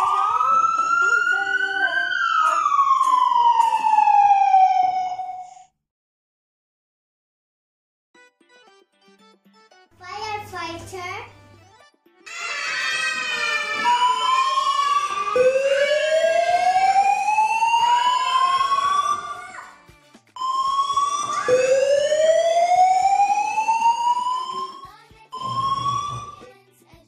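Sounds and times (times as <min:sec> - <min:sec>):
fire siren wailing: 0:00.0 - 0:05.7, 0:12.4 - 0:19.7, 0:20.4 - 0:26.4.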